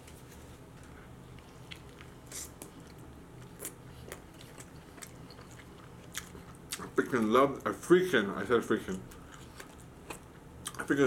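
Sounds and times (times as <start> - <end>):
person chewing food: 0.8 - 7.2, 9.0 - 10.9.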